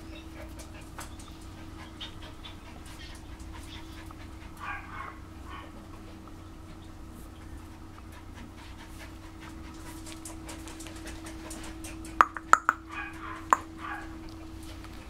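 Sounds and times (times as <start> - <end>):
puppy panting: 0.0 - 15.0
sharp clicks: 12.2 - 12.8.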